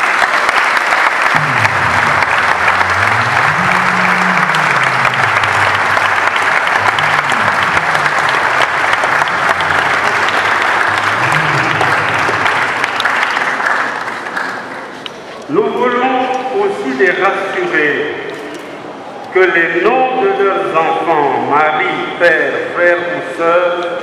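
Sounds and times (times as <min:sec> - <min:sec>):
congregation applauding: 0:00.0 - 0:15.0.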